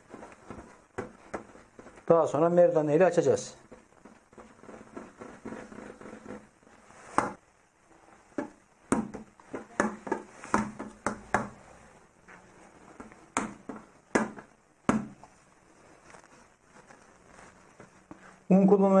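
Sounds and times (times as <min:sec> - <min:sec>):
hands rolling dough: 0:00.0 - 0:19.0
dough balls tapping on worktop: 0:00.2 - 0:02.1, 0:08.3 - 0:11.6, 0:13.0 - 0:15.3.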